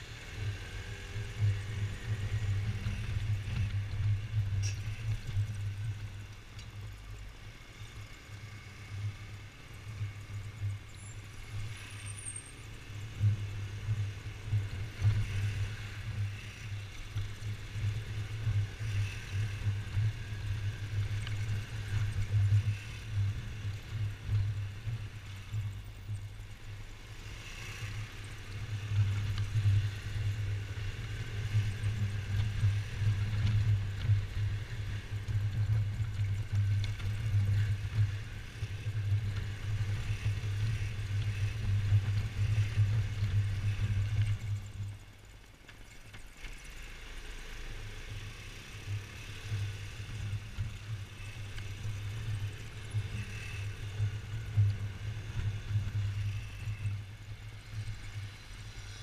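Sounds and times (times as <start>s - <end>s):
scooter engine running: 8.1s - 45.2s, 45.9s - 59.0s.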